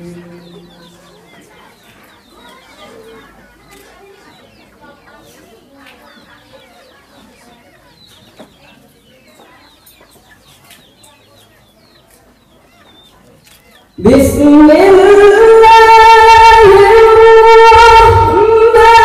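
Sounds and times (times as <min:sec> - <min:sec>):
bird chirps: 0:00.0 - 0:05.4.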